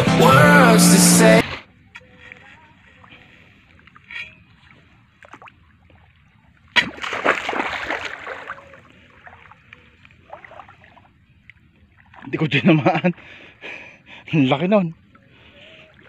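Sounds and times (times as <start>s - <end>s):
water splashing: 2.9s - 12.8s, 14.8s - 16.0s.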